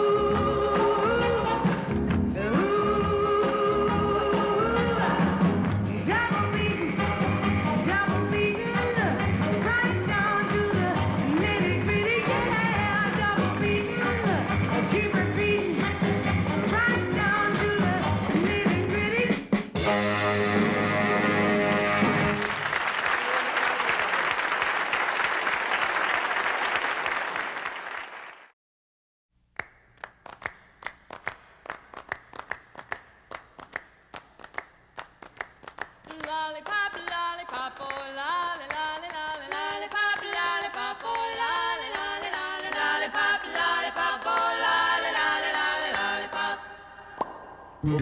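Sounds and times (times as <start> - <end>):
group singing without instruments: 0.0 - 18.3, 38.8 - 47.6
applause: 22.2 - 28.6, 29.6 - 43.2
steady hand claps: 29.5 - 46.4.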